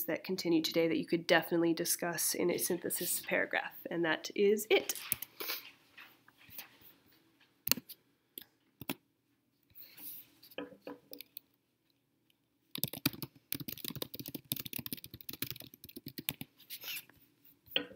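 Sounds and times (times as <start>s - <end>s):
rapid typing on keyboard: 12.7s - 16.5s.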